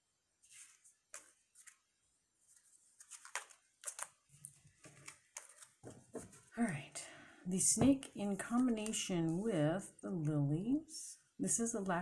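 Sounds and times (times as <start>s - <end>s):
cards sliding and tapping: 0.5s - 1.8s, 2.5s - 6.4s.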